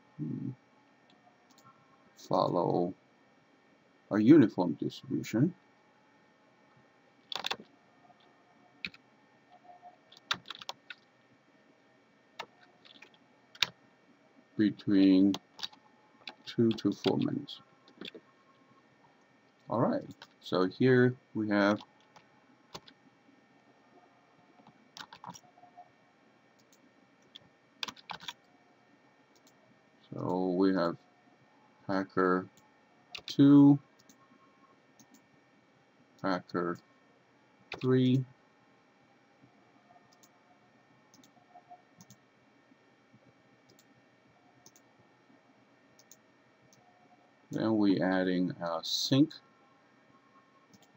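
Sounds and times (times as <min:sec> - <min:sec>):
keyboard and mouse clicks: 0:07.3 - 0:07.7, 0:09.6 - 0:11.0, 0:12.4 - 0:13.8, 0:15.3 - 0:17.3, 0:17.9 - 0:18.2, 0:20.0 - 0:20.4, 0:24.6 - 0:25.8, 0:26.6 - 0:28.4, 0:33.2 - 0:33.4, 0:41.1 - 0:42.2, 0:43.7 - 0:43.9
faint computer mouse clicks: 0:41.1 - 0:41.4, 0:42.0 - 0:42.2, 0:43.7 - 0:43.9, 0:46.0 - 0:46.8.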